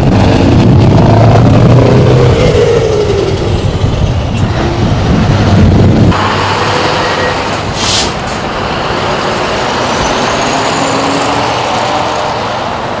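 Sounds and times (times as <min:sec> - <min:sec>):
truck engine passing: 0:00.0 - 0:13.0
tyre and road noise: 0:00.0 - 0:13.0
air brake hiss: 0:07.8 - 0:08.2.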